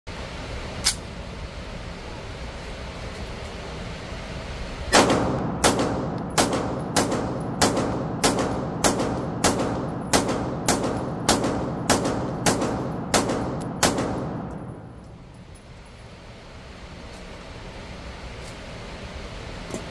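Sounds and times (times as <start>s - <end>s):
pistol shots echoing indoors: 4.9s - 15.0s.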